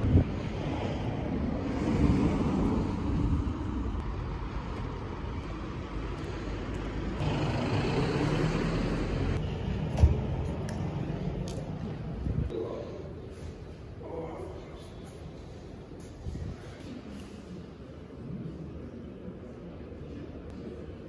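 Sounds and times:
road traffic noise: 0:00.0 - 0:12.5
vehicle engines running: 0:00.0 - 0:12.5.

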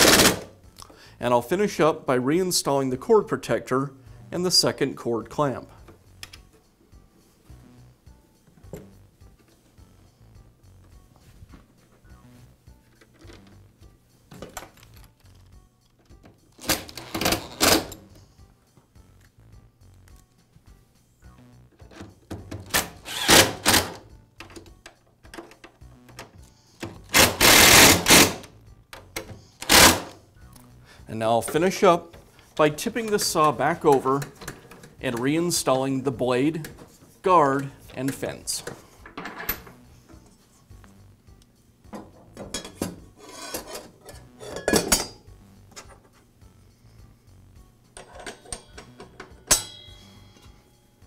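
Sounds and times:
screwdriver rasping: 0:23.0 - 0:24.0, 0:27.1 - 0:28.4
metal clinks and scrapes: 0:42.5 - 0:45.2, 0:48.0 - 0:50.6.

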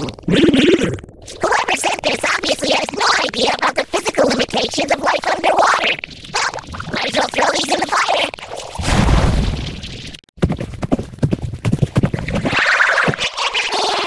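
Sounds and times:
pitch-shifted cartoon voices: 0:00.0 - 0:08.4.

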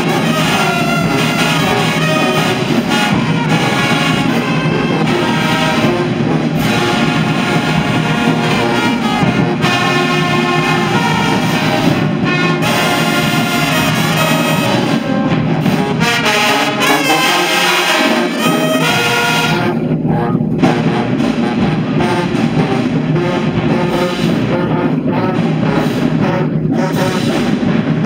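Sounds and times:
marching band brass playing: 0:00.0 - 0:28.0.

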